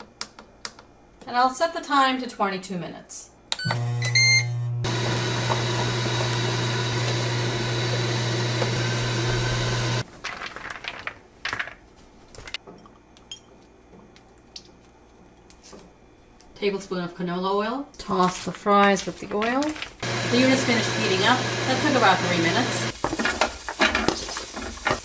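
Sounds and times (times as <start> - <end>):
appliance beeping: 3.5 - 10.0.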